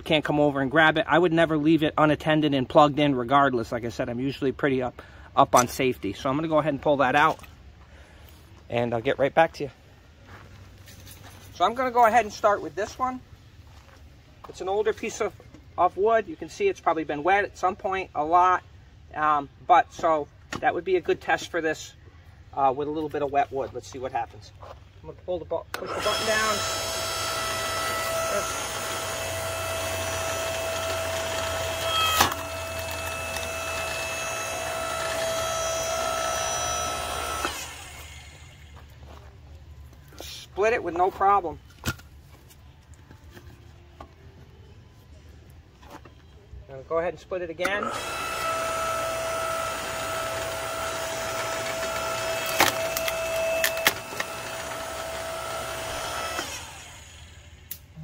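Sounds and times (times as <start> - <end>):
log splitter motor whining: 25.7 - 39.0, 47.6 - 57.9
wood splitting cracks: 51.5 - 54.8.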